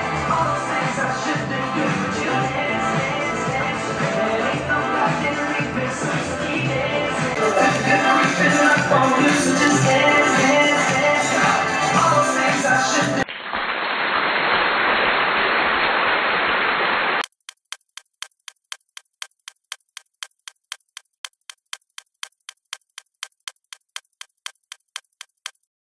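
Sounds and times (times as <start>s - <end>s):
clock-like ticking: 17.2s - 25.7s.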